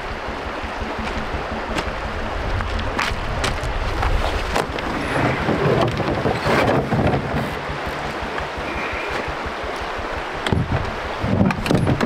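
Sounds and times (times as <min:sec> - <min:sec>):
wind buffeting microphone: 0:00.0 - 0:12.0
creek running over gravel: 0:00.8 - 0:11.3
scraping rustles on gravel: 0:02.8 - 0:06.7.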